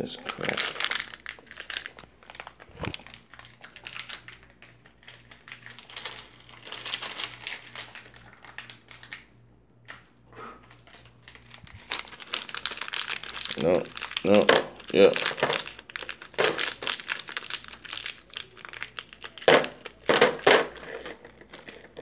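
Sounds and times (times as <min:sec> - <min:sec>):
plastic bag crinkling: 0:00.0 - 0:09.3, 0:10.6 - 0:22.0.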